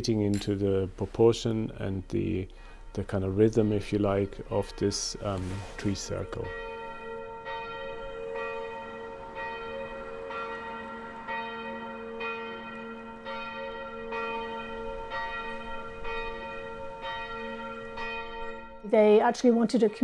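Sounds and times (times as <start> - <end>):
church bell tolling: 0.0 - 20.0.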